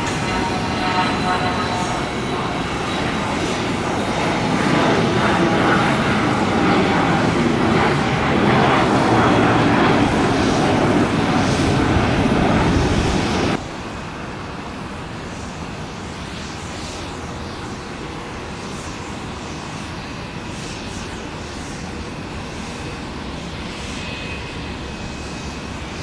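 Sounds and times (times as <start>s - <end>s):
jet taking off: 0.0s - 14.6s.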